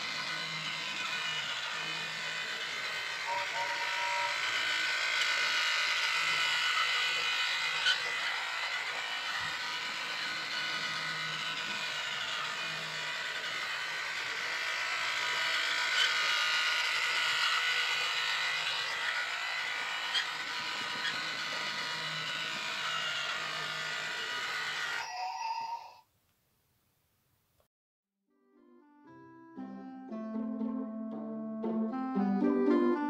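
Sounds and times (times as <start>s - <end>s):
sharp clicks of toy train: 0.0s - 25.0s
toy train whirring: 0.0s - 26.0s.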